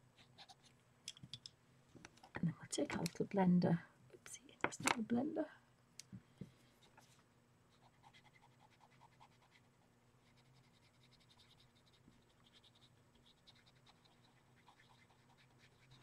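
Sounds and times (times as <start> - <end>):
pencil scratching on paper: 7.8 - 16.0.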